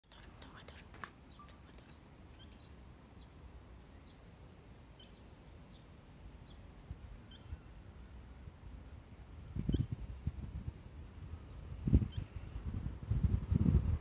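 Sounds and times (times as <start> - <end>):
young birds peeping: 0.1 - 3.4, 5.0 - 7.9.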